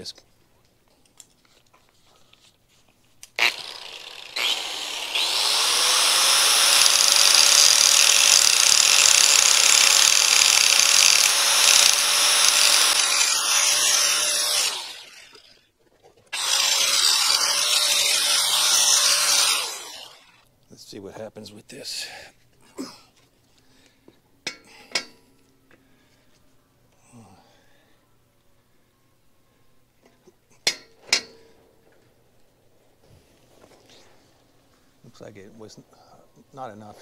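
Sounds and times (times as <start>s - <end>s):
angle grinder grinding metal: 3.4s - 15.5s, 16.4s - 20.4s.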